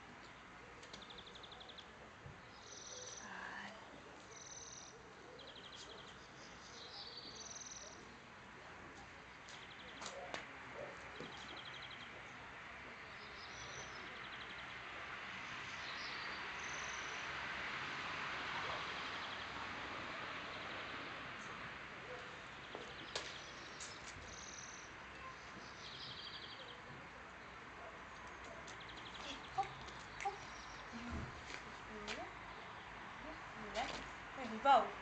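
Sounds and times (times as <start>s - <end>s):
small birds chirping and trilling: 9.4s - 17.4s, 18.6s - 33.6s.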